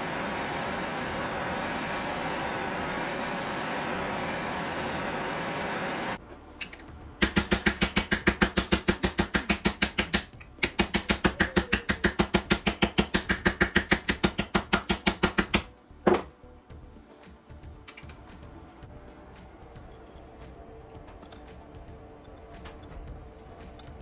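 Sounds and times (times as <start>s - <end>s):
propane torch hissing: 0.0s - 6.2s
hammer striking aluminium: 6.6s - 16.3s.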